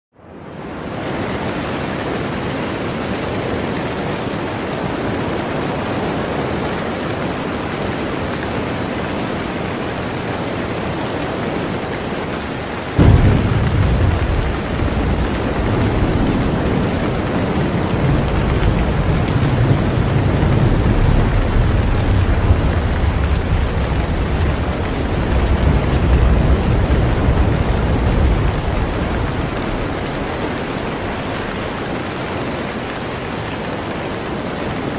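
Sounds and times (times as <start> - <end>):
heavy rain hiss: 0.5 - 34.9
deep rumble: 13.0 - 31.7.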